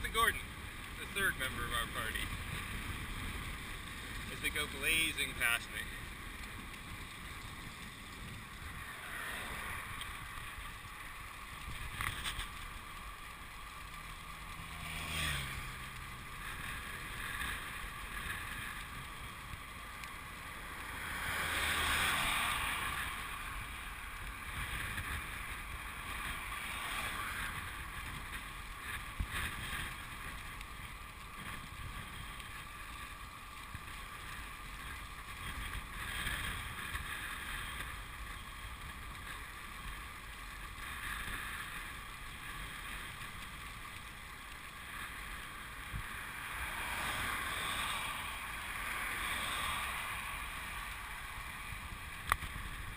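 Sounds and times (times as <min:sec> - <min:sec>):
wind rushing over microphone: 0:14.0 - 0:32.9, 0:44.9 - 0:52.9.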